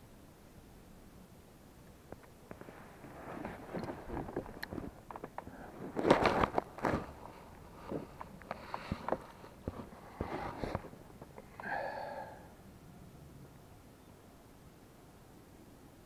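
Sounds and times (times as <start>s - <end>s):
rustling: 2.0s - 12.0s
light clicks and knocks: 3.4s - 11.5s.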